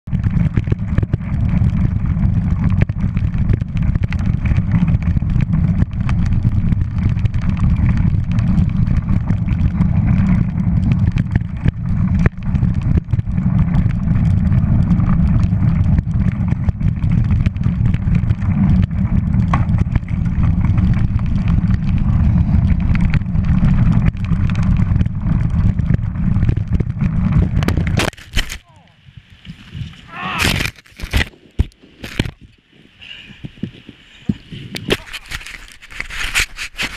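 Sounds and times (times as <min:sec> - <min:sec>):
wind rumbling on microphone: 0:00.0 - 0:36.9
bike rattling over stones: 0:00.1 - 0:32.8, 0:33.4 - 0:36.9.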